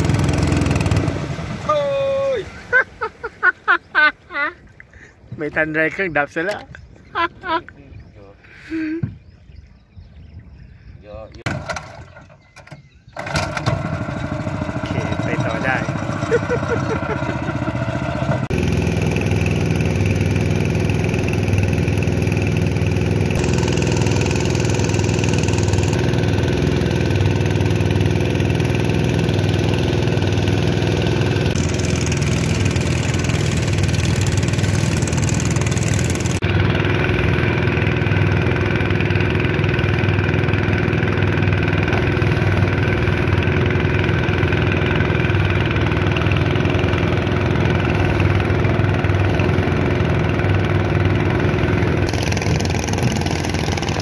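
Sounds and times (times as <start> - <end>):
boat engine running: 0.0 - 3.2, 11.4 - 54.0
rushing water: 0.0 - 3.8.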